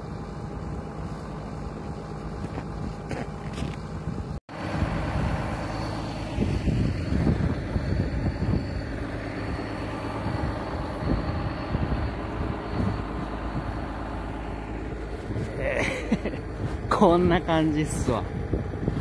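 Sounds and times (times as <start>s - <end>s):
tractor diesel engine running: 0.0s - 19.0s
uneven low rumbling: 0.0s - 19.0s.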